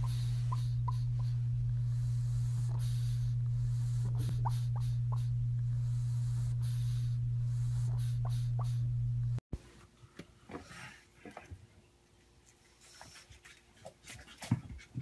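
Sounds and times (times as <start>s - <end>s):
steady low hum: 0.0s - 9.7s.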